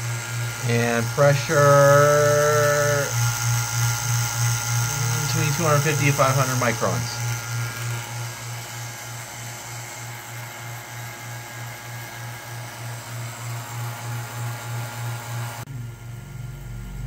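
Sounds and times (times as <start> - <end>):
pulsing mechanical hum: 0.0 - 17.0.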